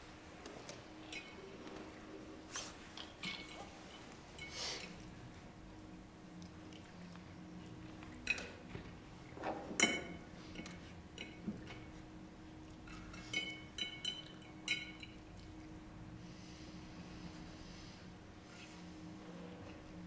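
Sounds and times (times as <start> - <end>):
faint steady hum: 0.0 - 20.0
glassware clinking: 3.2 - 4.6, 9.6 - 11.4, 13.1 - 15.2.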